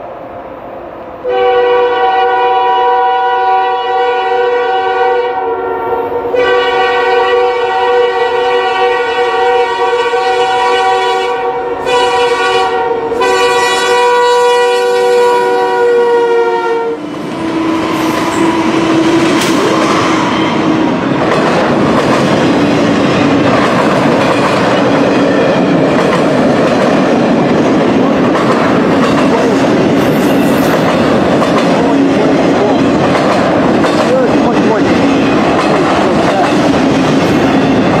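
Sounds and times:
locomotive horn: 0:01.2 - 0:19.1
train wheels clacking over rail joints: 0:21.2 - 0:38.0.

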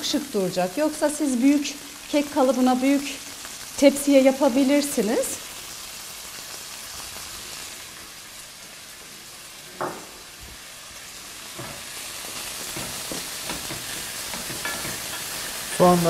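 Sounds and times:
rice and onions sizzling in oil: 0:00.0 - 0:16.0
knock: 0:09.8 - 0:10.1.

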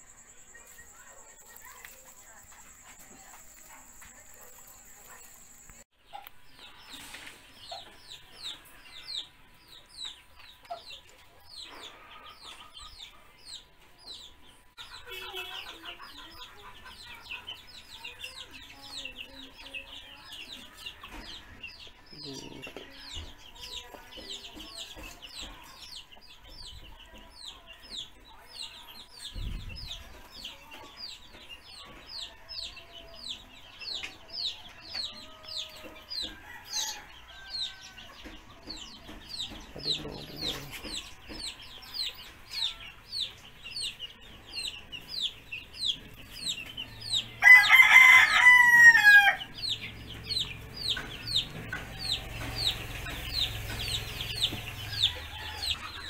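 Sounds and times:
chicks peeping: 0:00.0 - 0:56.0
rooster crowing: 0:47.4 - 0:49.5.

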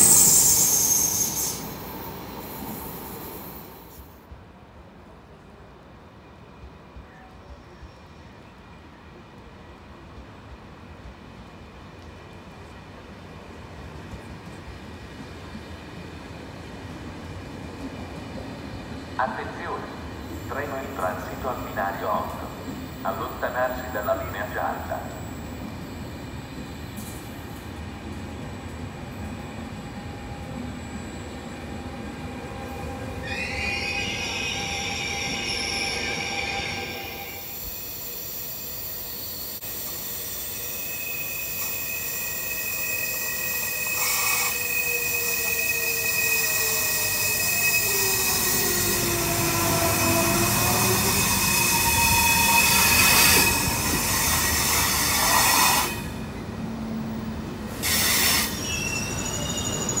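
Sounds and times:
wheels squealing on rails: 0:00.0 - 0:04.2, 0:29.2 - 0:56.4, 0:57.7 - 1:00.0
high-speed train passing: 0:00.0 - 1:00.0.

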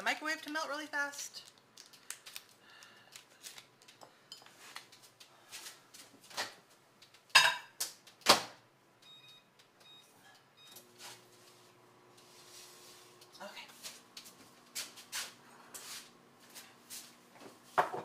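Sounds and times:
microwave keypad beeps: 0:09.0 - 0:10.8.

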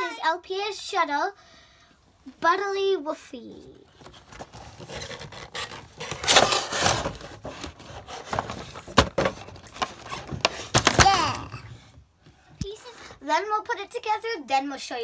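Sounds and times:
cardboard rubbing and scraping: 0:03.9 - 0:11.2.

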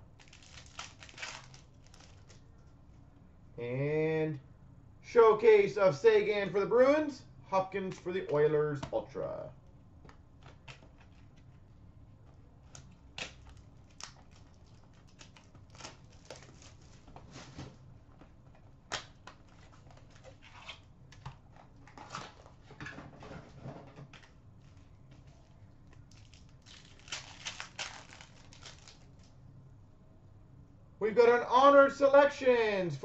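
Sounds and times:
foil wrappers tearing and crumpling: 0:00.1 - 0:02.4, 0:12.7 - 0:17.1, 0:26.0 - 0:29.3.

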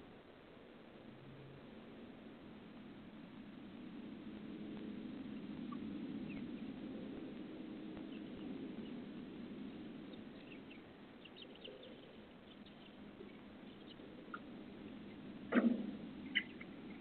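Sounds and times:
low steady hum: 0:00.0 - 0:17.0
high bird chirps: 0:10.0 - 0:15.2, 0:16.2 - 0:16.7.

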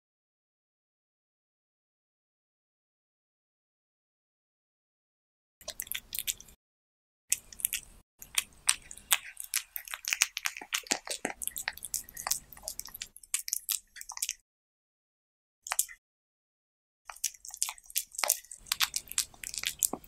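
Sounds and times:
cat chewing: 0:05.6 - 0:06.6, 0:07.3 - 0:14.4, 0:17.1 - 0:20.0.

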